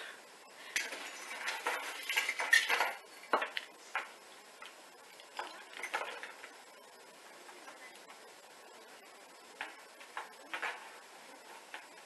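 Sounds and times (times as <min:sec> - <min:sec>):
decorations rattling: 0:00.7 - 0:04.0, 0:05.1 - 0:06.6.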